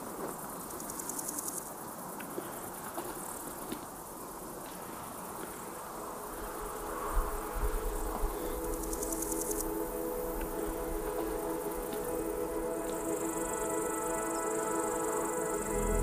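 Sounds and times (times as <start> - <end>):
insects trilling: 0.0 - 16.0
steady hiss: 0.0 - 16.0
low rumble: 15.6 - 16.0.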